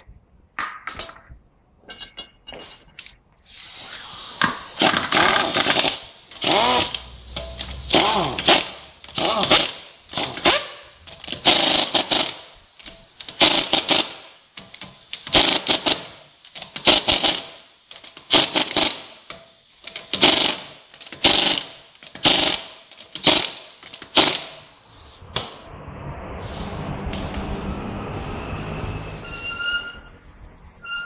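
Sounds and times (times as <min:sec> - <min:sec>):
pneumatic impact wrench hammering: 0:01.9 - 0:25.6.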